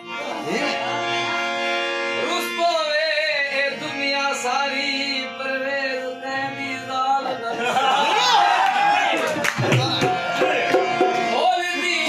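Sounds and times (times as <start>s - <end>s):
man singing: 0.0s - 7.7s, 9.7s - 12.0s
harmonium sustained notes: 0.0s - 8.3s, 9.9s - 12.0s.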